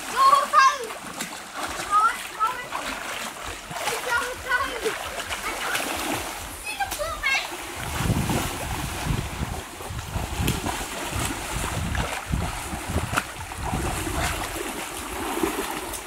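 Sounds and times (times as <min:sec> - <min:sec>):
water splashing and sloshing: 0:00.0 - 0:16.0
wind rumble on microphone: 0:07.7 - 0:16.0.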